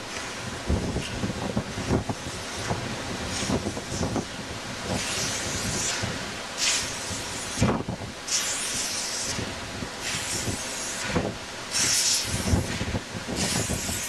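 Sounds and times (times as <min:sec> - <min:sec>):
steam hiss: 0:00.0 - 0:14.0
steam locomotive chuffs: 0:00.0 - 0:14.0.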